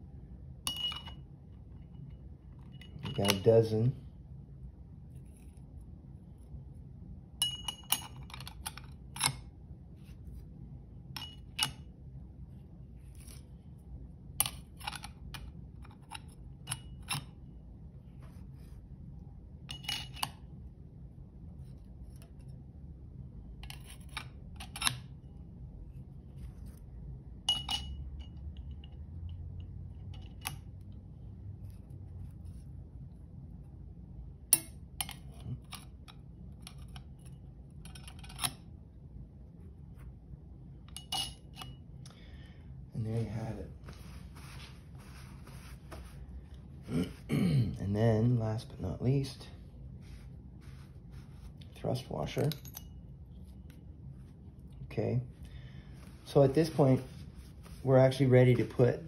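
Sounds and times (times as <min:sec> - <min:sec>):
faint low hum: 0:00.0 - 0:59.0
metal clutch plates clinking: 0:02.8 - 0:03.7.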